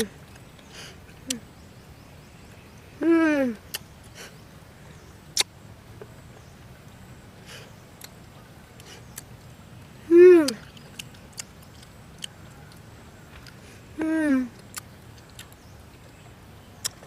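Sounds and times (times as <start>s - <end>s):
boy humming mm: 3.0s - 4.4s, 10.1s - 10.6s, 14.0s - 14.6s
chewing clicks: 3.7s - 3.9s, 8.8s - 9.3s, 10.5s - 13.6s, 14.6s - 15.7s, 16.8s - 17.0s.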